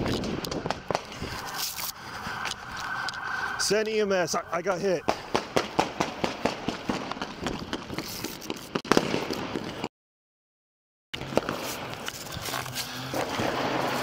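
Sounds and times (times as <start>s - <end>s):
rapid gunfire: 5.1s - 7.8s.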